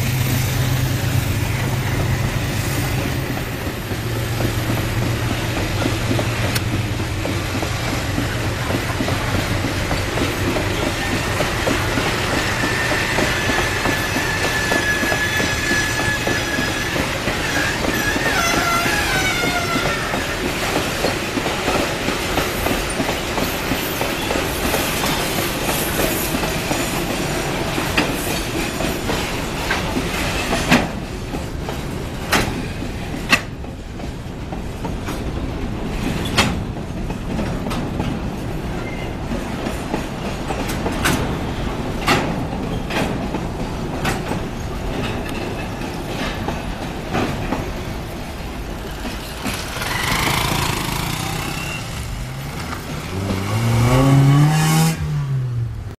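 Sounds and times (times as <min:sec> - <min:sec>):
freight wagon wheels clacking on rails: 0:00.0 - 0:55.0
car engine revving: 0:52.3 - 0:55.7.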